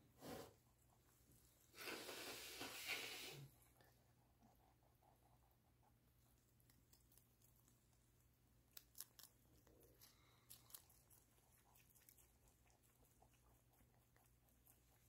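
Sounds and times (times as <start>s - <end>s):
rabbits crunching lettuce: 3.6s - 15.0s.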